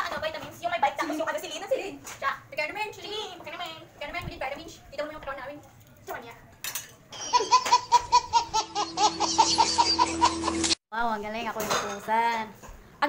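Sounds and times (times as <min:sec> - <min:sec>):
people laughing hard: 0:07.2 - 0:10.8.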